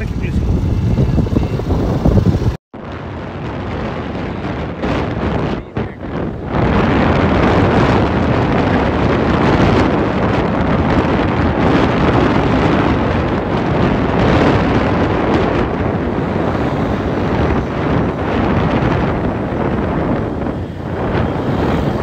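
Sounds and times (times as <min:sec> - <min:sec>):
scooter engine running: 0:00.0 - 0:02.6
wind buffeting microphone: 0:00.0 - 0:22.0.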